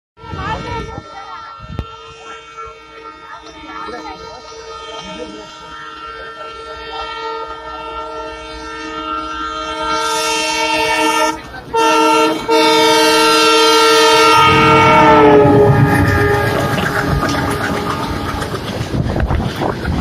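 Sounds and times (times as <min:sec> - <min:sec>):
train horn: 0:00.2 - 0:19.4
rumble of train wheels and wagons: 0:00.2 - 0:20.0.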